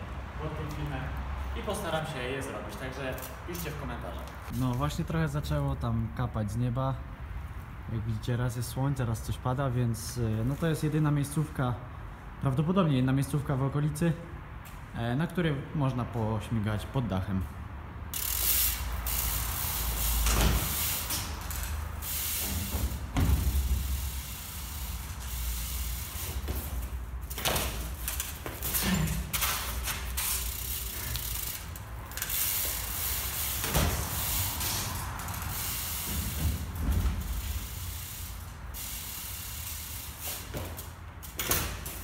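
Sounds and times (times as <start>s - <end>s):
bike tyres rolling on concrete: 0.4s - 5.4s, 18.1s - 42.0s
bike landing thud: 20.2s - 21.4s, 22.4s - 24.0s, 26.2s - 30.0s, 33.4s - 34.4s, 36.0s - 37.8s, 40.3s - 42.0s
bike wheels knocking on floor: 22.5s - 23.9s, 33.6s - 34.3s.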